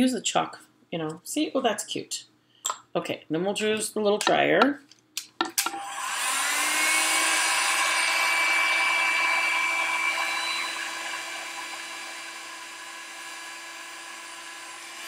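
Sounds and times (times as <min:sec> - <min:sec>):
craft dryer fan whine: 0:05.6 - 0:15.0.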